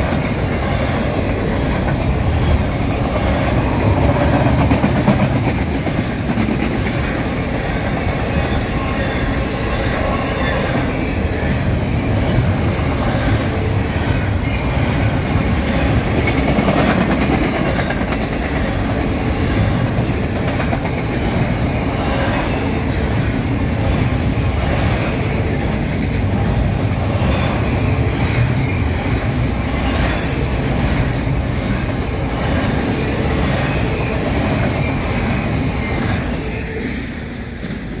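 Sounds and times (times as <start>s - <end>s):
freight train wheels rumbling: 0.0s - 38.0s
high wheel squeals: 7.8s - 16.4s.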